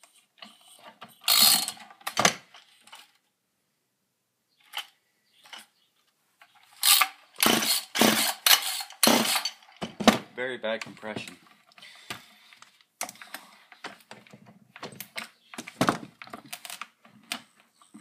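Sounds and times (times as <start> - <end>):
chainsaw recoil starter ratcheting: 1.2 - 2.2, 6.8 - 9.7.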